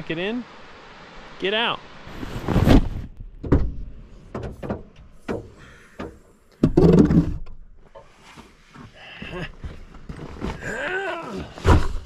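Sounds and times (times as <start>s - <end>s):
tripod thump and scrape on carpet: 2.2s - 3.8s.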